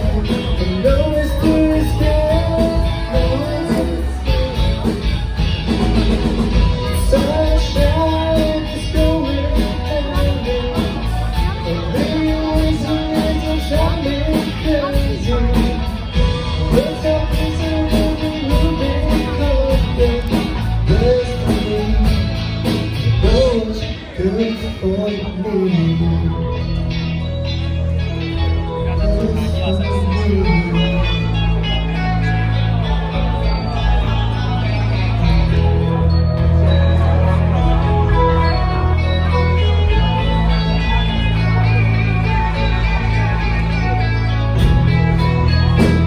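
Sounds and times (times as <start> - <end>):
lead vocal singing: 0.0 - 4.9, 6.8 - 22.4
live rock band: 0.0 - 46.0.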